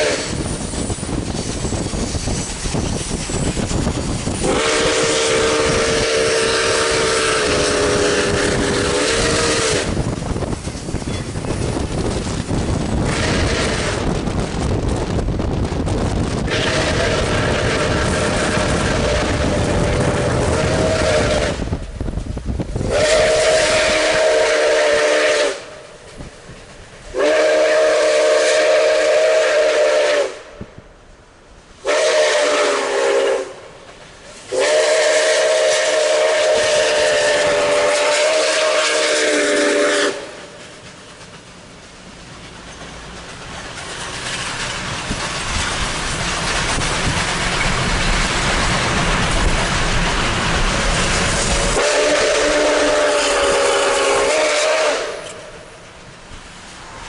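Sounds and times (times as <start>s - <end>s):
steam whistle chord blasts: 0.0s - 0.4s, 4.4s - 10.0s, 16.5s - 21.8s, 22.8s - 25.8s, 27.1s - 30.6s, 31.8s - 33.7s, 34.5s - 40.5s, 51.6s - 55.6s
rushing noise of running train: 0.0s - 57.0s.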